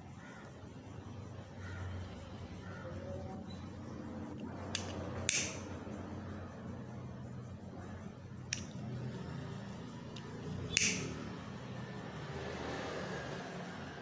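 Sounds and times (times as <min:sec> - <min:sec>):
steady low hum: 0:00.0 - 0:12.2
lighter flint clicking: 0:04.7 - 0:05.7, 0:08.5 - 0:08.8, 0:10.2 - 0:11.1.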